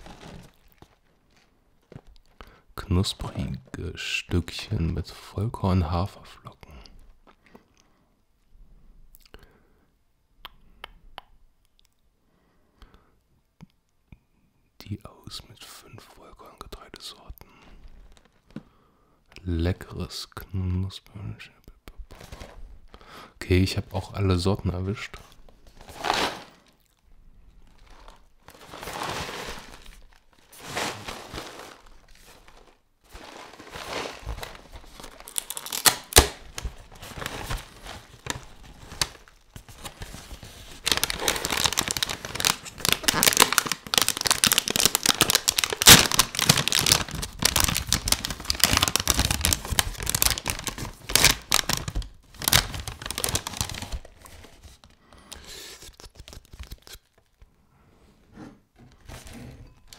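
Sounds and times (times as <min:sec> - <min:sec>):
cardboard tearing: 0:00.0 - 0:01.0, 0:25.8 - 0:26.6, 0:27.8 - 0:54.6
plastic bag crinkling: 0:00.0 - 0:02.4, 0:25.6 - 0:27.0, 0:27.6 - 0:55.0.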